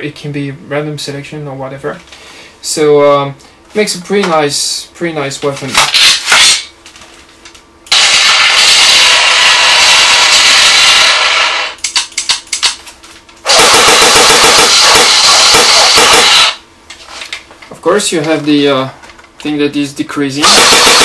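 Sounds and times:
rifle automatic fire sound effect: 7.9s - 11.7s, 13.5s - 16.6s, 20.4s - 21.0s
sharp clicks: 11.8s - 12.8s.

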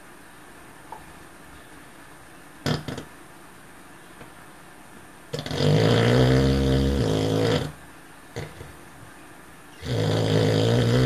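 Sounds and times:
dog snoring: 5.3s - 7.8s, 8.4s - 8.7s, 9.8s - 11.0s
dog snorting: 5.3s - 7.8s, 8.4s - 8.8s, 9.8s - 11.0s.

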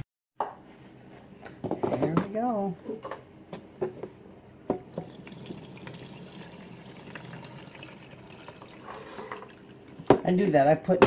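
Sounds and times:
water pouring into coffee maker: 4.9s - 10.1s.

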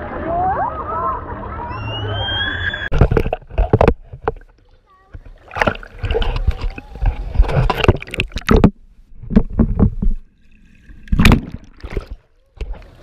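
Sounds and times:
water gurgling: 0.0s - 13.0s
water splashing and sloshing: 2.8s - 13.0s.

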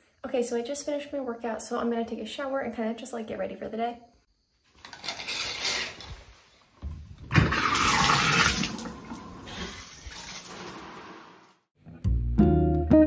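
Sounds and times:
shower water spraying: 7.5s - 11.6s.

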